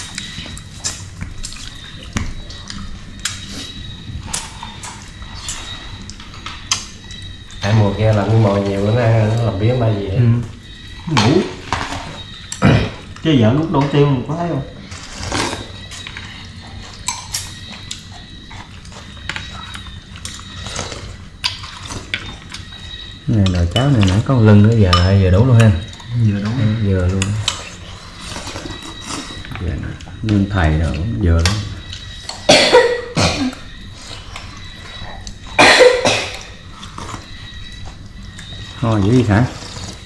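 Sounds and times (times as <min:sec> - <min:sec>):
person coughing: 0:32.5 - 0:33.6, 0:35.6 - 0:36.5.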